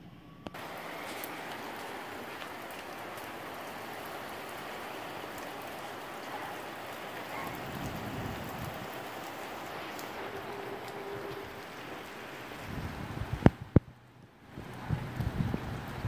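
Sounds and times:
heavy rain hissing: 0.5 - 16.0.

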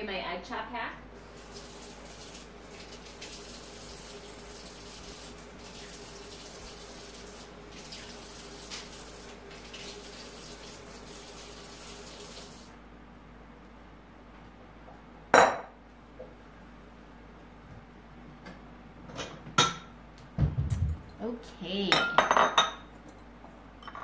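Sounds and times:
faucet water running: 1.1 - 12.8.

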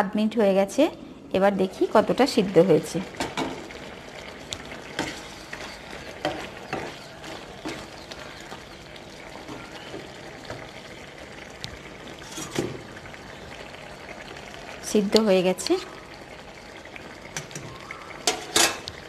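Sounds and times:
curry simmering with bubbling hiss: 0.0 - 19.0
wooden spatula scraping pan: 4.9 - 8.6, 12.2 - 12.8.

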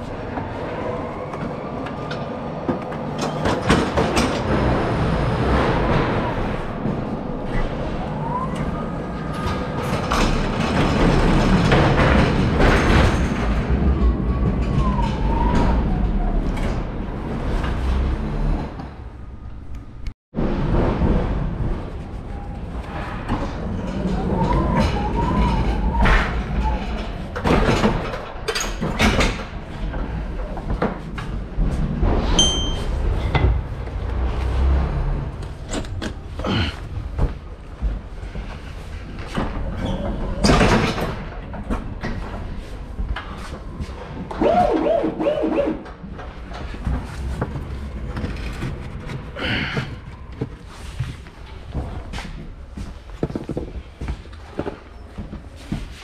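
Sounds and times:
wheels rumbling and rattling: 0.0 - 56.0
clanks and knocks: 1.8 - 7.2, 9.3 - 19.0, 23.2 - 44.6.

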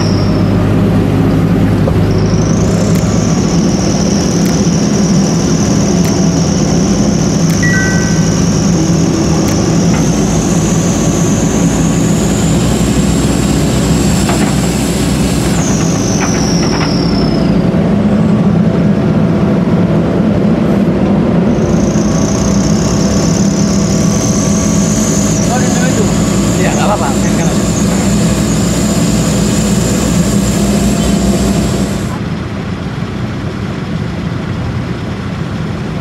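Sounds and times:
diesel engine running: 0.0 - 36.0
faint high whine: 2.0 - 17.8, 21.5 - 32.3.

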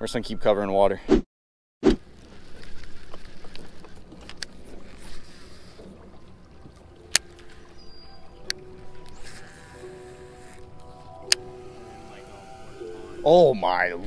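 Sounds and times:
fishing reel clicks: 8.4 - 13.3.

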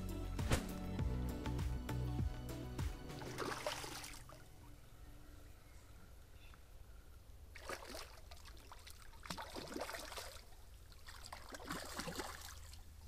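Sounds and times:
fish splashing in water: 7.6 - 12.8.

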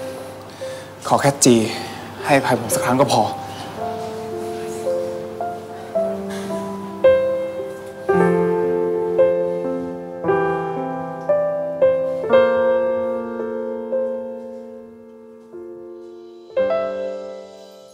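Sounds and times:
slow soft piano chords: 0.0 - 17.9.

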